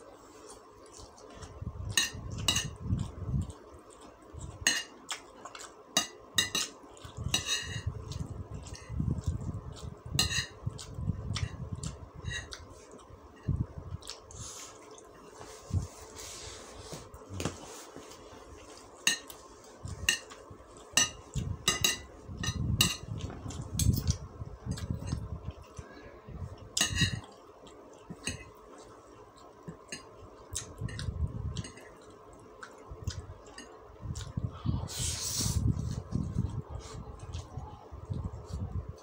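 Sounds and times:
cutlery clinking on a plate: 0:06.0 - 0:06.8, 0:21.0 - 0:23.1, 0:26.8 - 0:27.3.

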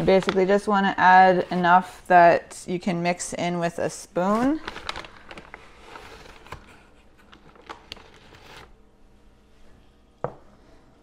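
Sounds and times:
faint kitchen rustling: 0:04.2 - 0:11.0.

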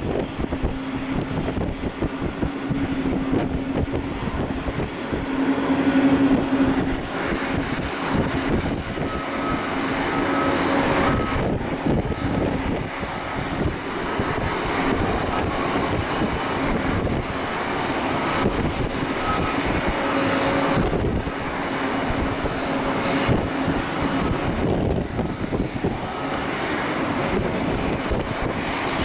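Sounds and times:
jet engines idling: 0:00.0 - 0:29.0.

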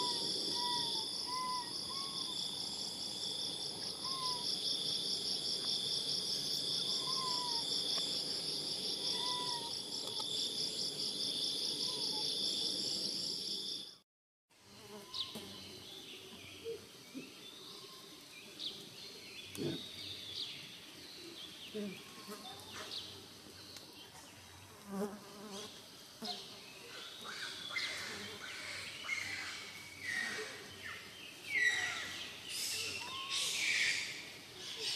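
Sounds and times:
insect chorus buzzing: 0:00.0 - 0:14.0
bird chirps: 0:29.1 - 0:34.9.

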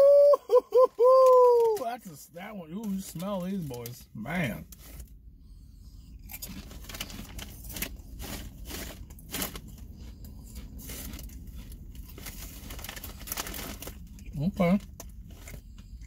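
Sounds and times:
potato chips crunching: 0:06.2 - 0:16.0.

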